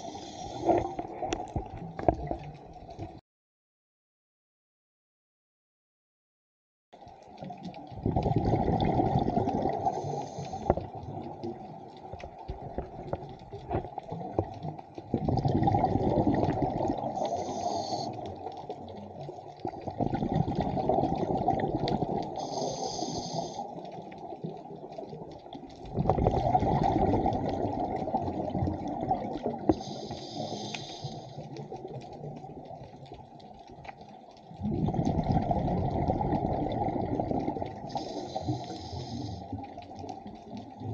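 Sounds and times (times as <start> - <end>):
regulator inhalation hiss: 0.0 - 0.9, 9.9 - 10.7, 17.2 - 18.2, 22.4 - 23.8, 29.7 - 31.5, 37.9 - 39.5
exhaled bubbles underwater: 0.0 - 3.2, 7.0 - 40.9.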